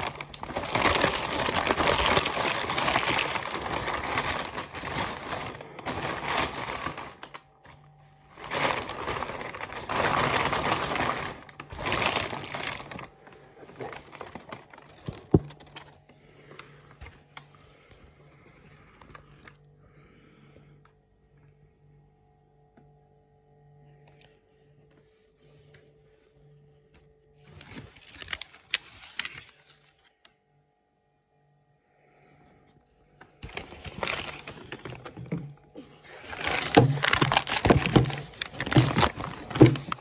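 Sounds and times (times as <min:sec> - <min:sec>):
paper wrapping tearing and crinkling: 0:00.0 - 0:16.4, 0:27.4 - 0:30.2, 0:33.4 - 0:40.0.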